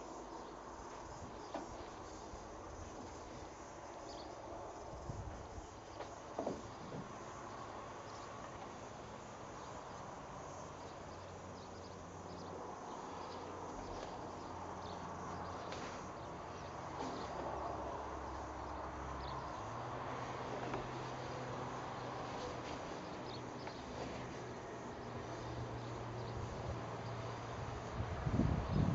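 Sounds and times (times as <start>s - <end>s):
insects chirping: 0.0s - 28.9s.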